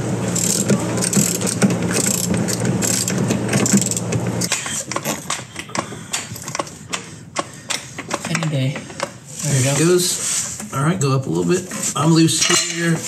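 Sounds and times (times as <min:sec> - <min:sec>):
motor humming: 0:00.0 - 0:07.6
floor jack clicking and clanking: 0:00.0 - 0:09.2.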